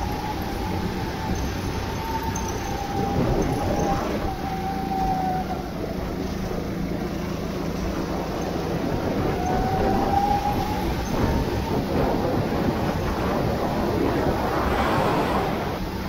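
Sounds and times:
faint whine: 0.0 - 16.0
go-kart engine running: 0.0 - 16.0
steady rushing noise: 6.6 - 16.0.

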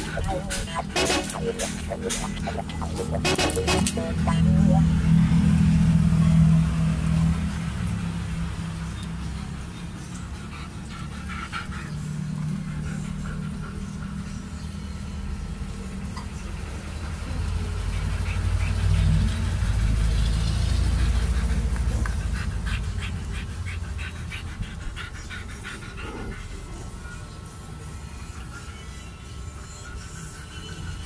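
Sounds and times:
puppies squeaking and whining: 0.0 - 4.8.

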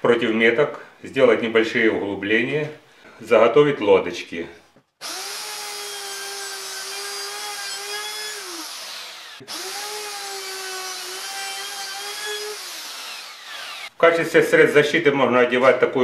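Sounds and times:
router whining and winding down: 5.0 - 13.9.

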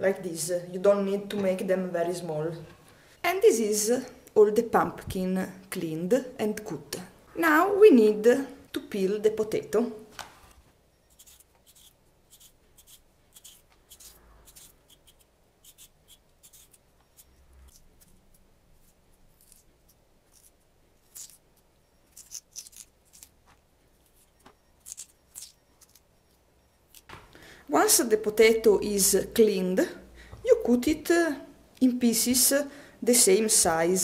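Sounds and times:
knife scraping potato skin: 11.1 - 26.1.

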